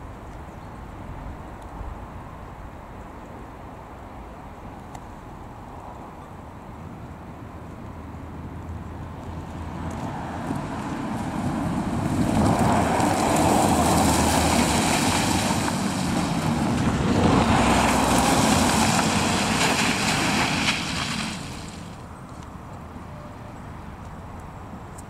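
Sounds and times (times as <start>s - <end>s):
cars driving on wet road: 3.7s - 25.0s.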